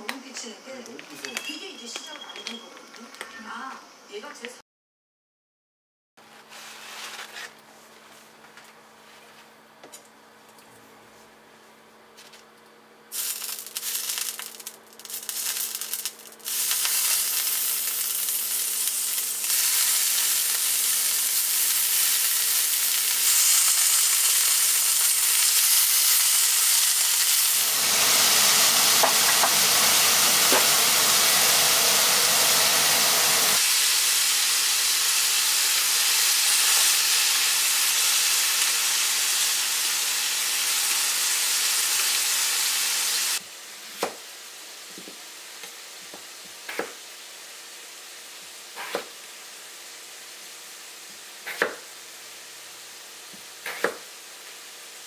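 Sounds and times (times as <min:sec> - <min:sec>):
meat sizzling in hot oil: 0:13.1 - 0:55.0.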